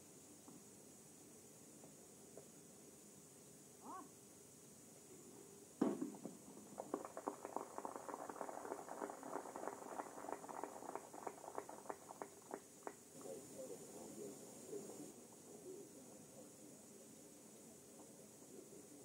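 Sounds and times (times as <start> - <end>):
scattered applause: 6.6 - 13.3.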